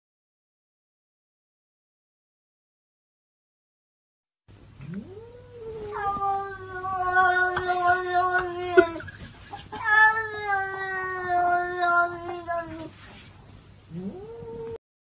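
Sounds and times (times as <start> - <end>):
cat yowling: 4.9 - 9.1.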